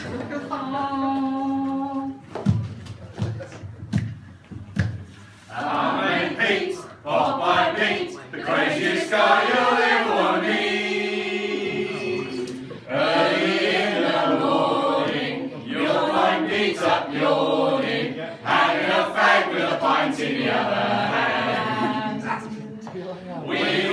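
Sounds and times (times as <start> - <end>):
group of people singing: 5.4 - 23.9.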